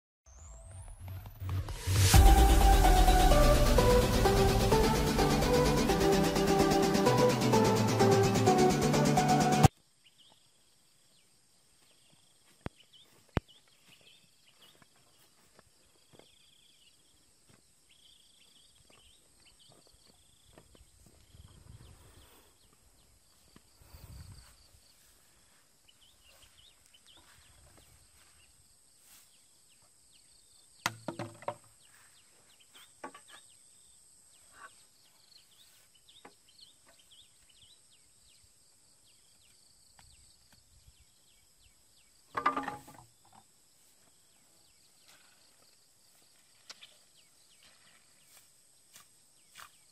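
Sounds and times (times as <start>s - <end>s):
footsteps rustling through grass: 11.8s - 16.4s, 18.9s - 29.5s, 44.9s - 49.9s.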